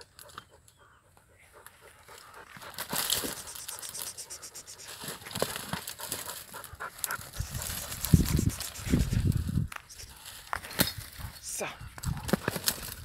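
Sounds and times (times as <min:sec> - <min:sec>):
dog panting: 0:00.1 - 0:09.2.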